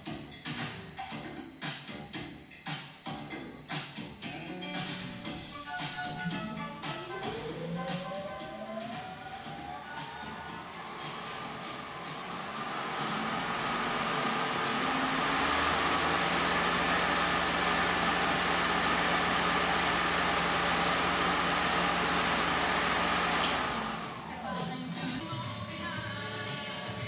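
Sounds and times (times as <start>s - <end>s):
lathe motor hum with high whine: 4.6s - 27.0s.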